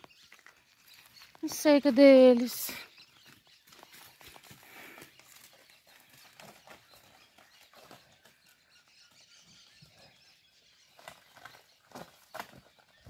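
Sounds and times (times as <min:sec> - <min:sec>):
hooves shifting: 0:00.0 - 0:13.0.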